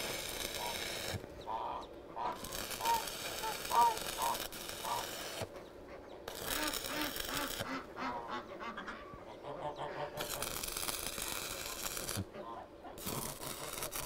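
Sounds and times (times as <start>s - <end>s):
arc welding crackling and hissing: 0.0s - 1.5s, 2.2s - 5.6s, 6.3s - 7.8s, 10.2s - 12.3s, 13.0s - 14.0s
bird calling: 0.6s - 10.3s.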